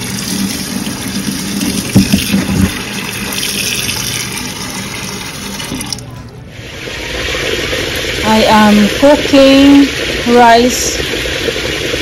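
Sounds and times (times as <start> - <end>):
tap water running into metal pot: 0.0 - 6.3, 7.0 - 12.0
knocks: 1.9 - 2.8.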